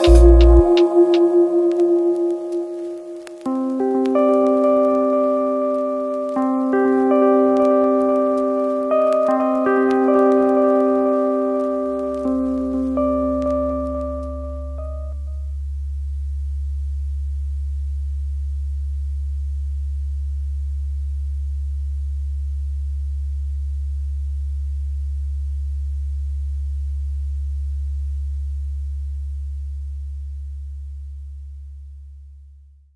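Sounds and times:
deep steady bass tone: 0.0s - 1.8s, 12.0s - 32.9s.

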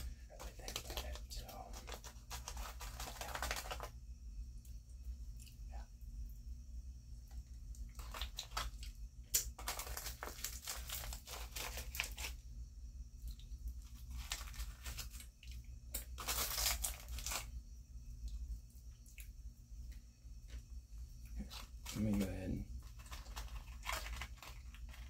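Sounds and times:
foil packet crinkling: 0.0s - 4.0s, 7.9s - 12.4s, 13.7s - 17.5s, 21.3s - 25.0s.

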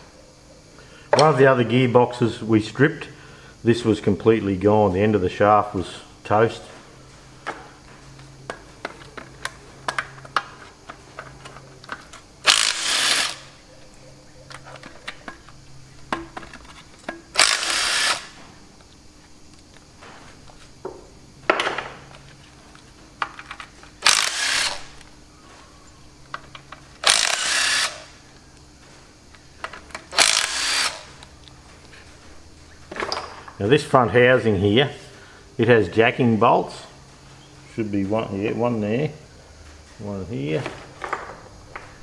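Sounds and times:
impact driver bursts: 12.4s - 13.6s, 17.3s - 18.4s, 24.0s - 24.9s, 27.0s - 28.1s, 30.1s - 31.1s.

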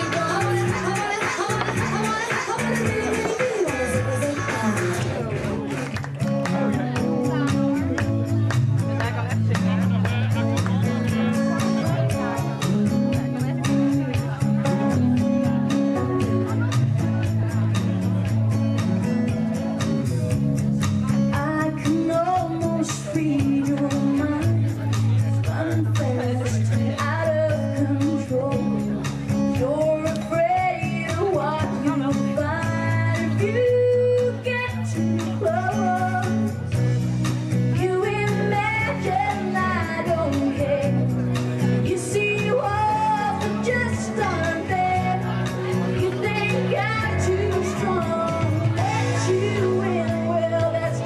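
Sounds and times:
woman singing into microphone: 0.0s - 5.7s, 21.1s - 36.7s, 37.6s - 51.0s
instrumental backing with beat: 0.0s - 51.0s.

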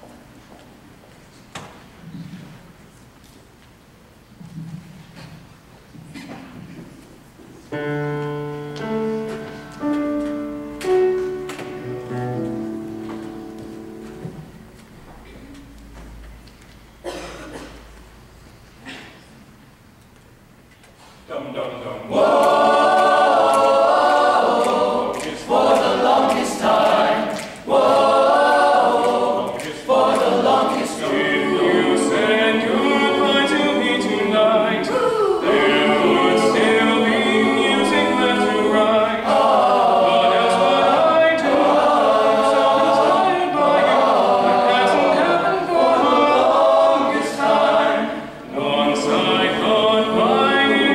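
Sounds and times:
men's choir singing: 22.0s - 50.9s.

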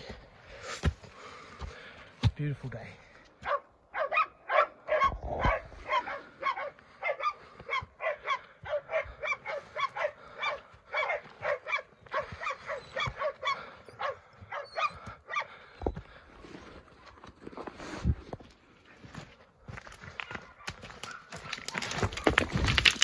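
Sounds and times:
dogs barking: 3.4s - 15.8s, 20.2s - 22.4s.

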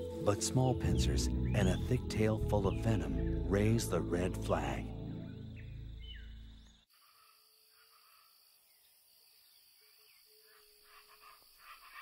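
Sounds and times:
background music: 0.0s - 6.7s
faint outdoor ambience: 0.0s - 12.0s
high-pitched insect call: 0.1s - 12.0s.

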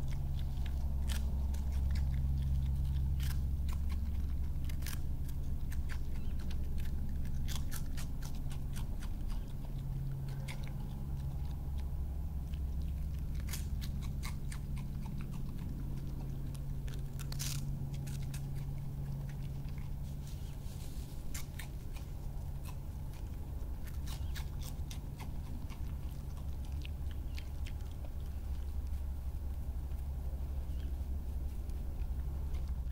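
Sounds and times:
animal crunching and chewing: 0.0s - 32.9s
steady low hum: 0.0s - 32.9s.

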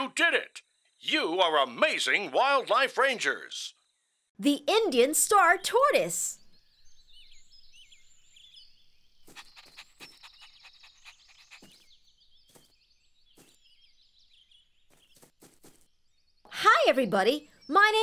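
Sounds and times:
birds chirping: 0.0s - 18.0s
puppy panting: 9.3s - 12.0s.

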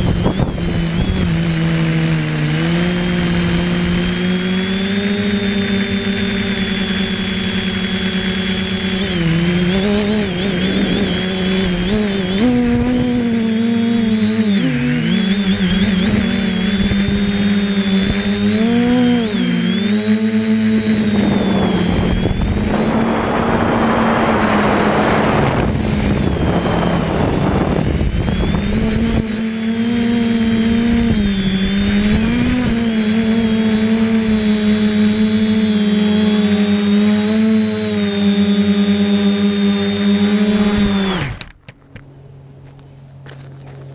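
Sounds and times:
drone motors whining: 0.0s - 43.9s
rushing noise: 21.3s - 27.8s.

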